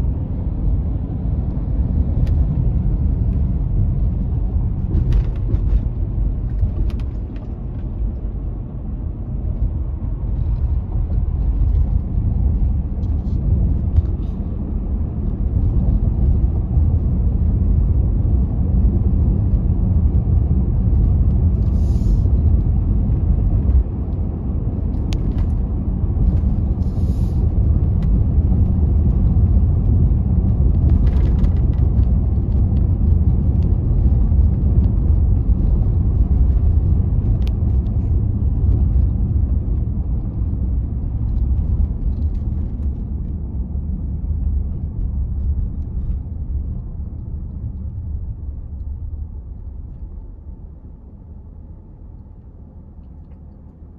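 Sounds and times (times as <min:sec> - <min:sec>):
car tyres and engine rumble: 0:00.0 - 0:53.9.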